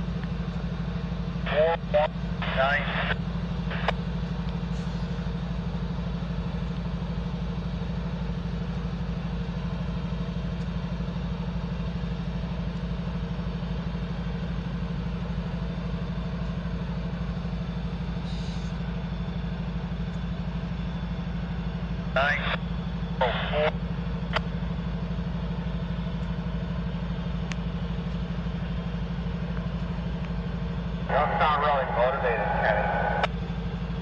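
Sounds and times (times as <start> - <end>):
locomotive idling: 0.0 - 34.0.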